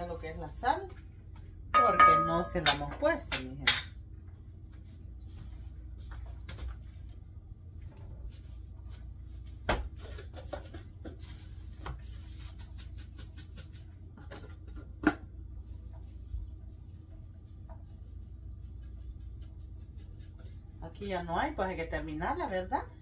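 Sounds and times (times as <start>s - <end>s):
low hum: 0.0s - 11.8s.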